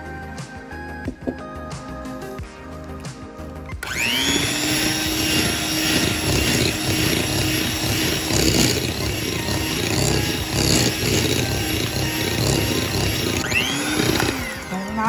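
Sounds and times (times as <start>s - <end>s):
electric mixer motor whining: 3.8s - 15.0s.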